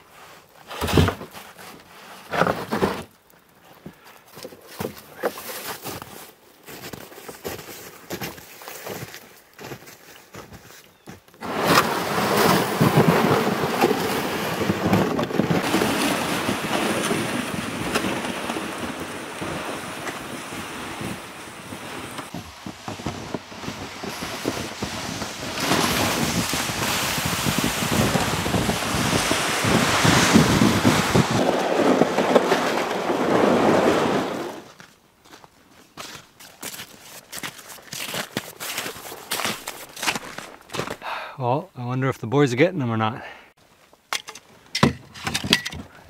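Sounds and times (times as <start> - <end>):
sled scraping over snow: 0.5 - 3.2, 4.3 - 34.9, 36.0 - 41.0
footsteps crunching in snow: 3.7 - 11.5, 12.3 - 41.0.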